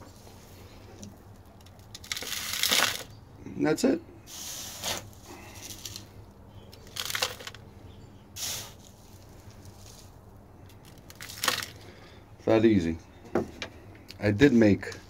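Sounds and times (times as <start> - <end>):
plastic scoop scraping sand: 4.3 - 6.1, 8.4 - 10.2.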